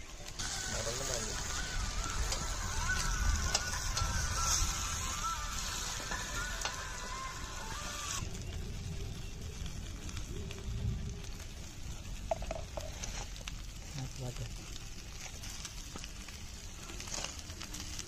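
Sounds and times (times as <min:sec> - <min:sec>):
fish sizzling in a pan: 0:00.0 - 0:18.0
small crackles: 0:00.0 - 0:18.0
background music: 0:00.4 - 0:08.2.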